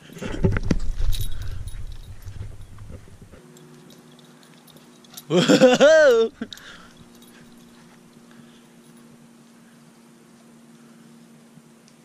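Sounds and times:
handheld camera rumble and thumps: 0.0 - 9.0
faint steady hum: 0.0 - 12.0.

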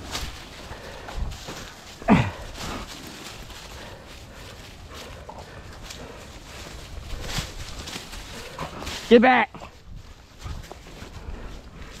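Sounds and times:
footsteps through dry leaves: 0.0 - 12.0
wind rumble on microphone: 2.4 - 12.0.

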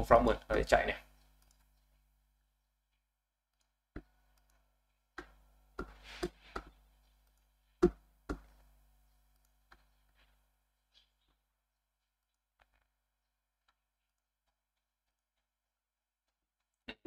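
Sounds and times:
keyboard and mouse clicks: 0.5 - 1.9, 5.2 - 8.6.

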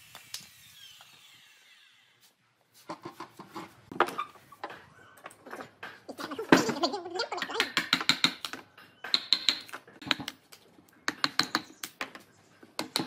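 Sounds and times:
circular saw spinning down: 0.0 - 2.2.

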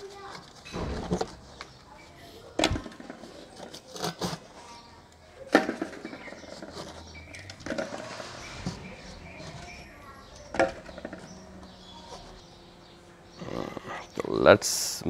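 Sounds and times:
scraping on metal lid: 5.8 - 14.2.

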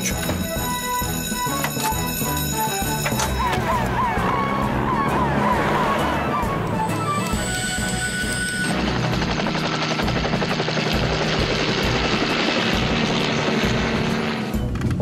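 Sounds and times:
helicopter rotor chopping: 6.5 - 14.5.

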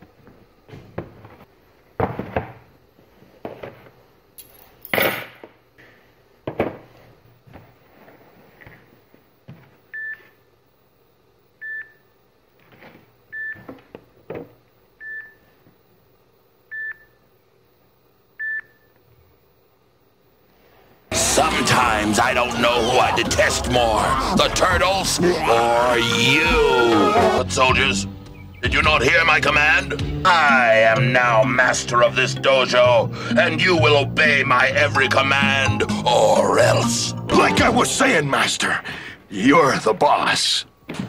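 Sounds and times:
boxes knocking and rustling: 0.2 - 4.1, 6.4 - 8.8.

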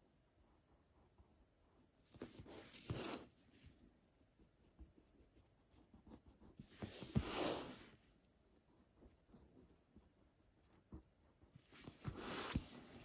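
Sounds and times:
pencil scratching on paper: 4.2 - 13.0.

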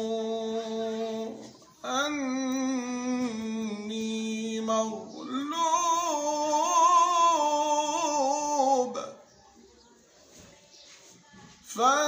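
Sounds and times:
man chanting: 0.0 - 9.2, 11.7 - 12.0.

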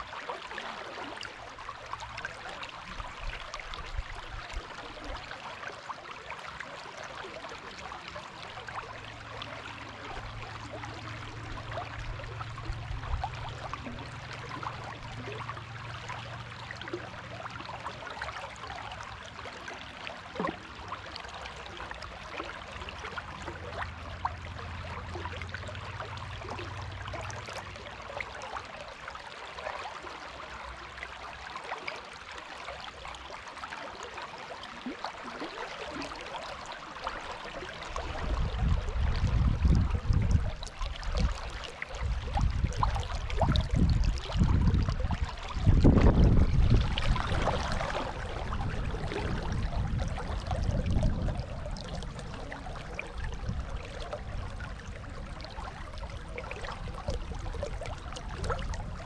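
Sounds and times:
low hum: 8.8 - 18.1.

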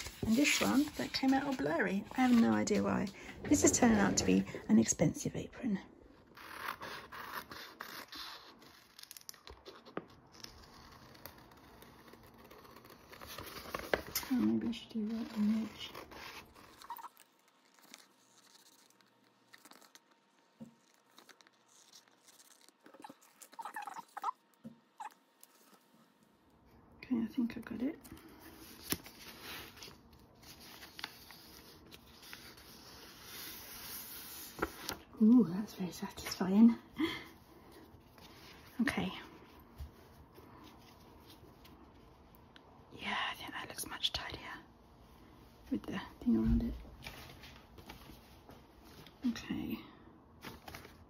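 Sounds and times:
paper rustle: 0.0 - 3.7, 6.4 - 24.3, 28.2 - 35.0, 50.4 - 51.0.

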